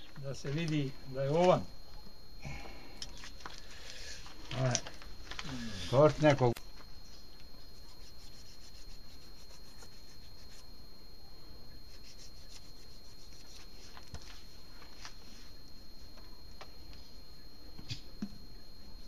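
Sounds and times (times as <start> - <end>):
hands rubbing: 7.6 - 10.7, 11.9 - 14.4.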